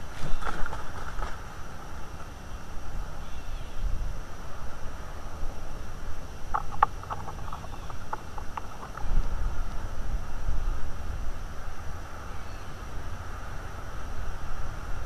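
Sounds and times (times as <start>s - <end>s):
wind rumbling on microphone: 0.0s - 15.0s
bird chirping: 6.5s - 9.1s.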